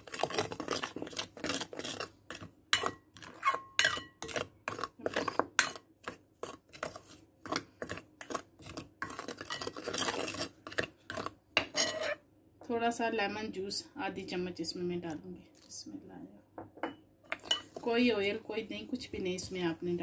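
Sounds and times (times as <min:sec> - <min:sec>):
spoon stirring in a glass bowl: 0:00.0 - 0:12.2, 0:16.8 - 0:18.4.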